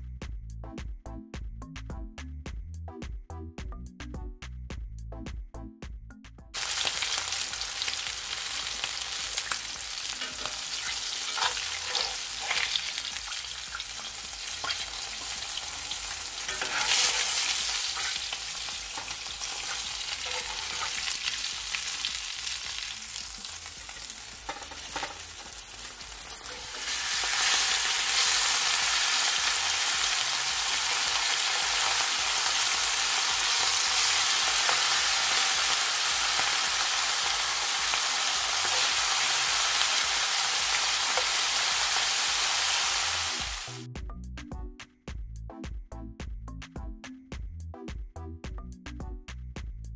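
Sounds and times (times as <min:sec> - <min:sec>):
fish sizzling in hot oil: 0:06.6 - 0:43.9
metal spatula clicks and scrapes: 0:10.2 - 0:12.9, 0:16.5 - 0:18.2.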